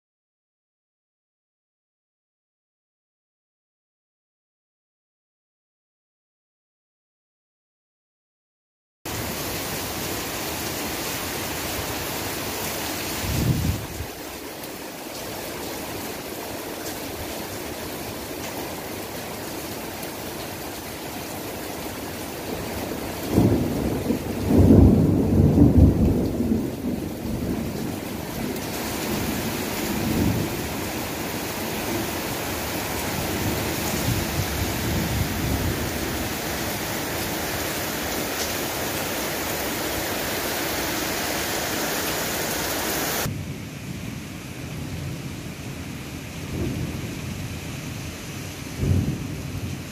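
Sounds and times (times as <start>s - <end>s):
heavy rain pouring: 9.1s - 49.9s
thunder rumbling: 22.7s - 40.0s, 43.2s - 48.0s, 48.8s - 49.9s.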